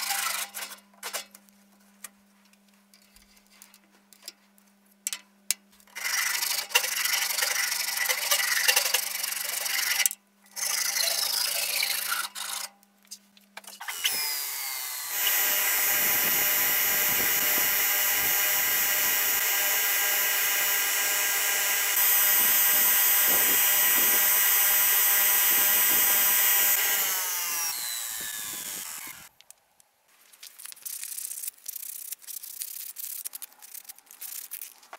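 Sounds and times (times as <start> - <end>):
belt grinder whine: 13.8 - 29.3
low motor hum: 14.6 - 29.3.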